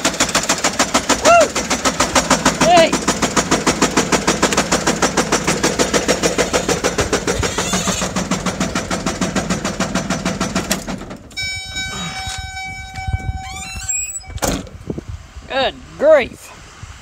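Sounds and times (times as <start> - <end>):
diesel engine knocking: 0.0 - 11.3
electronic warning tone: 11.4 - 14.4.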